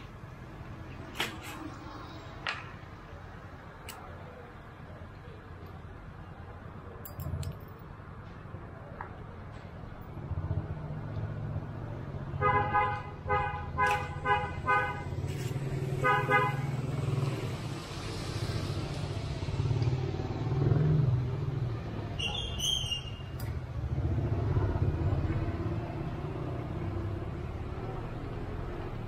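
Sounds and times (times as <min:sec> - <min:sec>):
passing vehicle engine rumble: 0:00.0 - 0:12.4, 0:13.0 - 0:29.0
car horn tooting: 0:12.4 - 0:15.1, 0:16.0 - 0:16.7.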